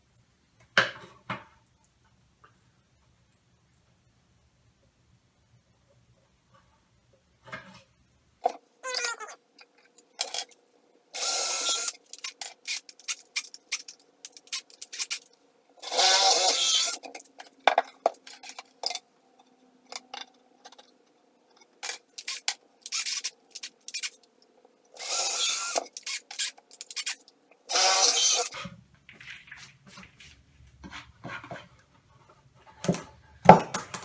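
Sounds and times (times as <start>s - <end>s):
cordless drill boring wood: 11.2s - 12.0s, 15.8s - 17.0s, 25.0s - 26.2s, 27.7s - 28.6s.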